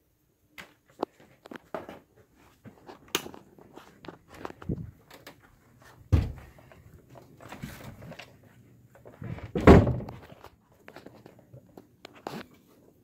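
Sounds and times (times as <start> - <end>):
dull thumps: 6.1 - 6.5.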